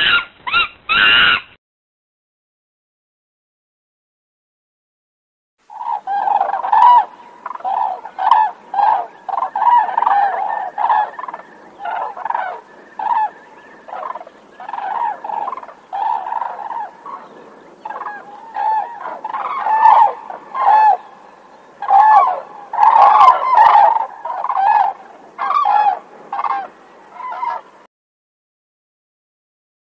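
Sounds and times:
cranes honking: 0:05.7 - 0:27.6.

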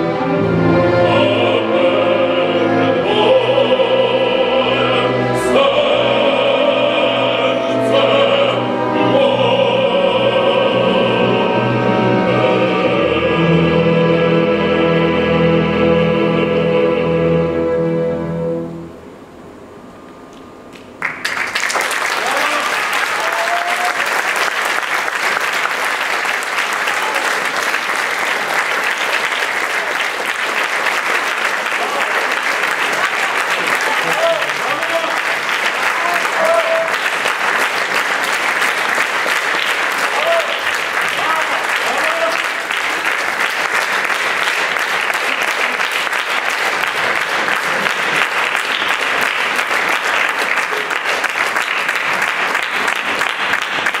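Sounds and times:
audience applauding: 0:20.7 - 0:54.0.

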